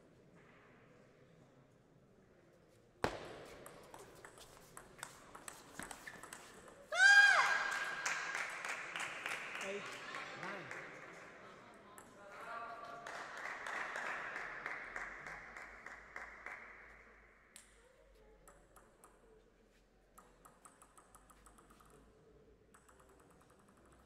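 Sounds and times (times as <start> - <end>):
table tennis ball bouncing: 3.0 - 8.7, 20.2 - 22.1, 22.7 - 24.0
applause: 7.3 - 11.6, 12.6 - 17.0.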